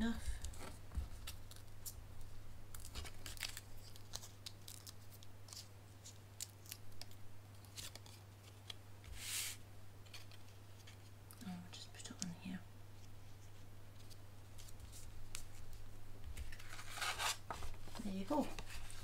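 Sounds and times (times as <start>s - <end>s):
paper clicks and rustles: 2.7s - 8.8s, 10.0s - 11.1s.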